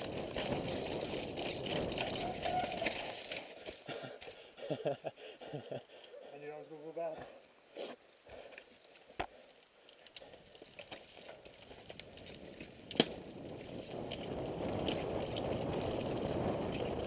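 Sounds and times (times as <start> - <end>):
tyre and wind rumble: 0.0 - 3.8, 10.3 - 17.0
bike clicks: 0.0 - 4.8, 8.2 - 17.0.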